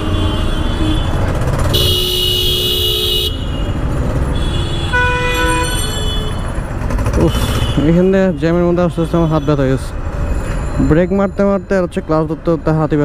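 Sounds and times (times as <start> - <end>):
vehicle horns honking: 0.0 - 6.6, 7.2 - 9.7
traffic and engine rumble: 0.0 - 13.0.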